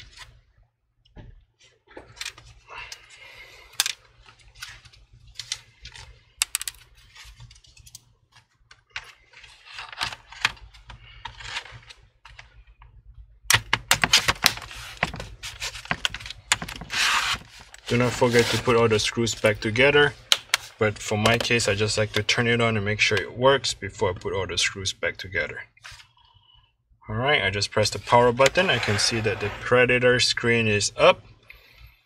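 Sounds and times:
plastic panel scraping: 0:14.0 - 0:19.6, 0:28.0 - 0:29.9.

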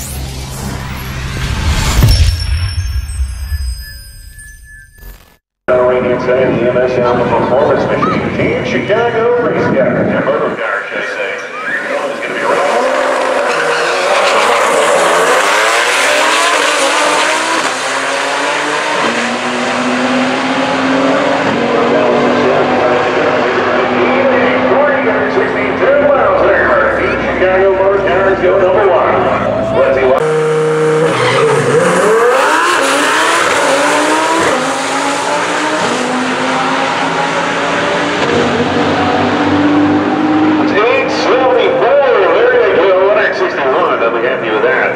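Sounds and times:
sports car engines accelerating hard: 0:11.7 - 0:44.9.

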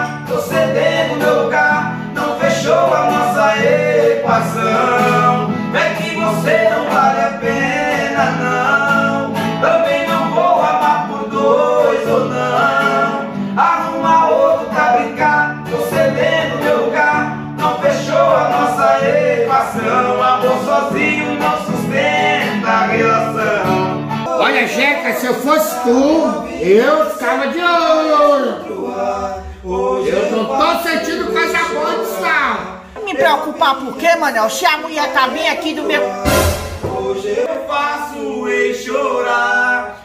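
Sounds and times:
strummed acoustic guitar: 0:00.0 - 0:27.8, 0:30.0 - 0:38.1
men singing: 0:00.0 - 0:40.0.

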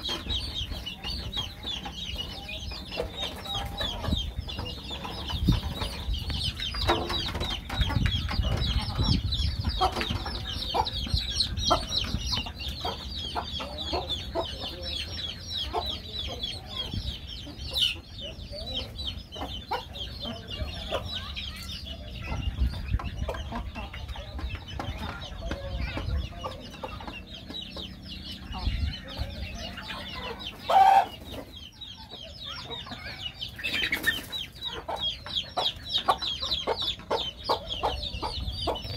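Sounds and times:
chickens clucking: 0:00.0 - 0:38.9
chicks peeping: 0:00.0 - 0:38.9
loud chicken call: 0:30.7 - 0:31.2.

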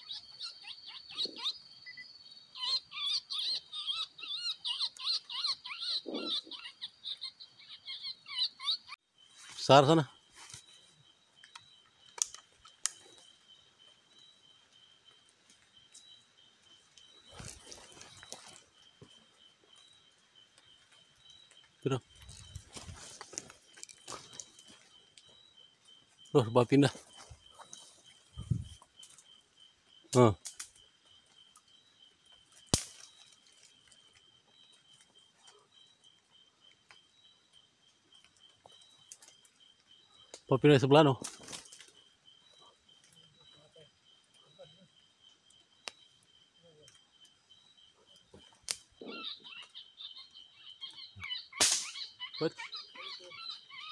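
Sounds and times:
night insects chirring: 0:00.0 - 0:53.9
rustling through undergrowth: 0:09.2 - 0:11.5, 0:15.3 - 0:29.5
sharp clicks: 0:11.4 - 0:13.1.

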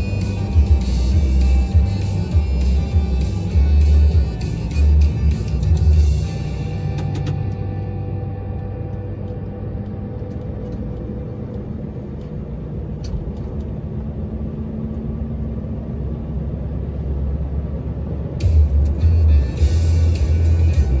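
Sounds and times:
tyres on road: 0:00.0 - 0:21.0
vehicle engine rumble: 0:00.0 - 0:21.0.

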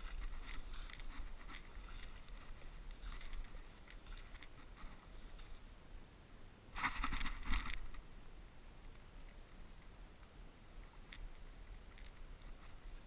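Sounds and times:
rustling in dry grass: 0:00.0 - 0:05.7, 0:06.7 - 0:08.1
faint rustles and ticks: 0:00.0 - 0:05.8, 0:06.7 - 0:13.0.

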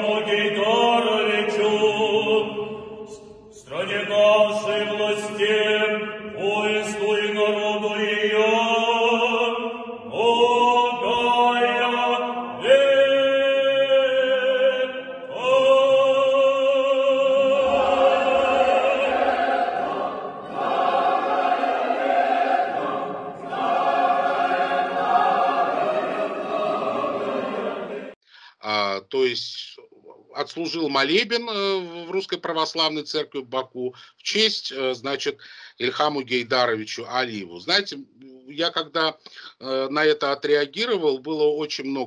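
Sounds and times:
man chanting with vibrato: 0:00.0 - 0:19.6
choir singing: 0:00.0 - 0:28.2.

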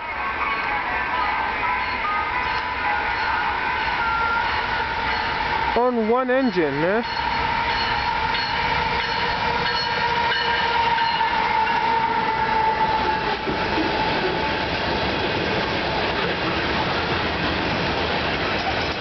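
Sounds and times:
steady high tone: 0:00.0 - 0:14.4
locomotive passing: 0:00.2 - 0:19.0
tank cars rolling on rails: 0:15.5 - 0:19.0.

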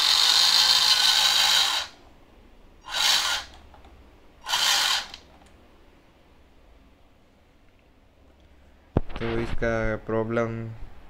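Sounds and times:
small electric motor whirring: 0:00.0 - 0:02.0, 0:02.8 - 0:03.6, 0:04.4 - 0:05.3.

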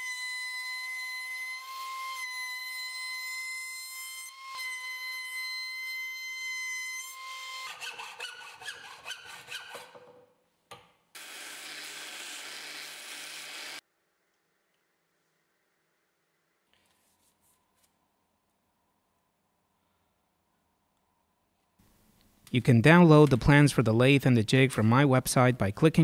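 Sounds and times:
hacksaw cutting metal tube: 0:00.0 - 0:10.2, 0:11.2 - 0:13.8
belt sander grinding metal: 0:11.2 - 0:13.8
router whining: 0:11.2 - 0:13.8.

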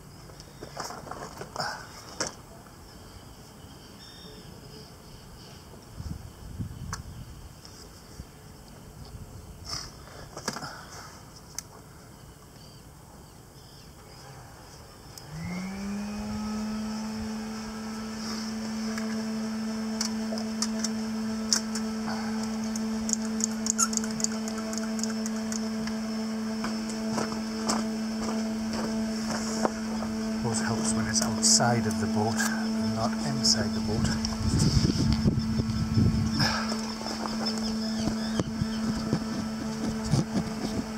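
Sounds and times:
motor humming: 0:14.0 - 0:40.9.

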